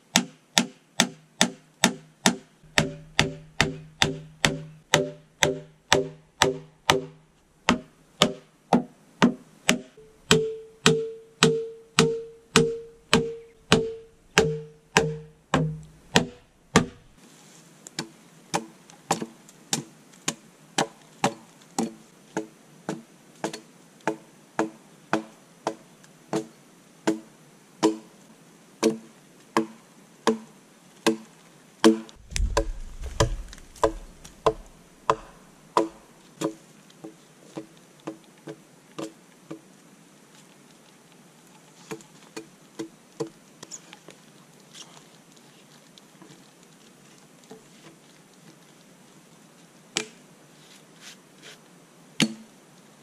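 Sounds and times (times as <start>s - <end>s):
hammer knocking on wood: 2.7s - 8.4s, 32.2s - 36.0s
low thud: 32.2s - 35.4s.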